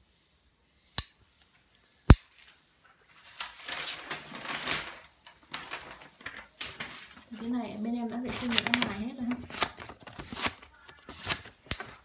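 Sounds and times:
rustling handling noise: 1.5 - 12.0
scissors snapping shut: 11.2 - 11.9.

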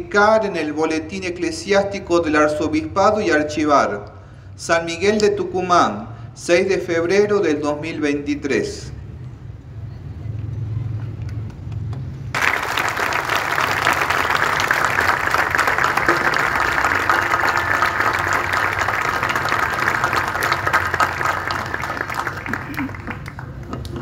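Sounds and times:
crowd applauding: 12.3 - 24.0.

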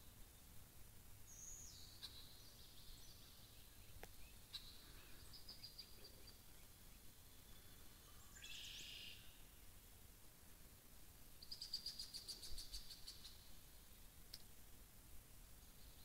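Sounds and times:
songbird calls: 1.3 - 9.6, 11.4 - 14.0.

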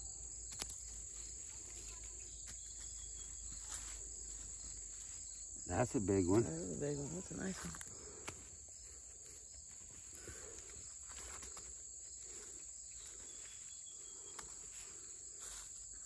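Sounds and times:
insect chorus: 0.0 - 16.0.

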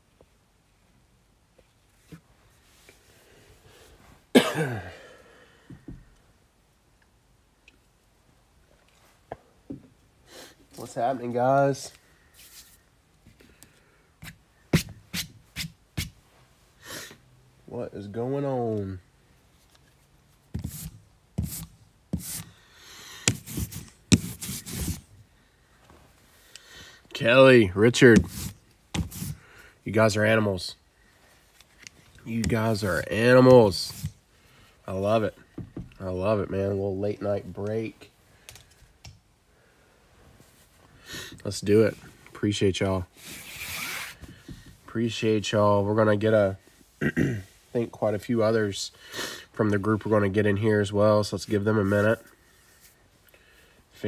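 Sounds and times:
person coughing: 4.3 - 5.2, 47.0 - 47.5.

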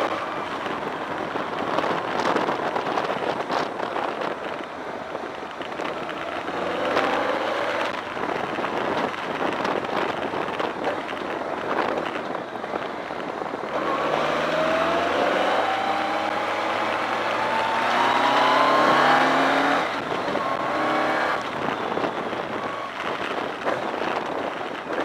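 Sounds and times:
tyre noise on wet road: 0.0 - 25.0
wind rush: 0.0 - 25.0
motorcycle engine accelerating: 5.5 - 12.2, 13.6 - 25.0.

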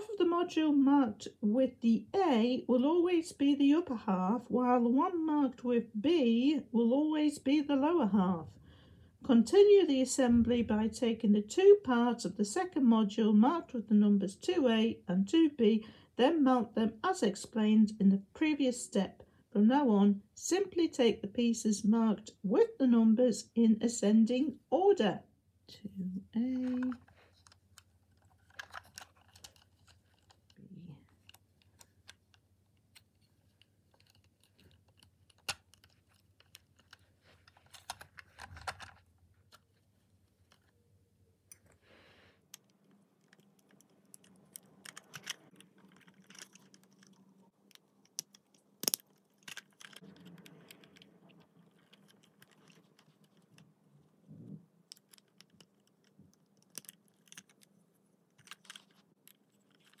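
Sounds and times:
plastic parts snapping together: 34.0 - 39.6, 42.5 - 51.0.

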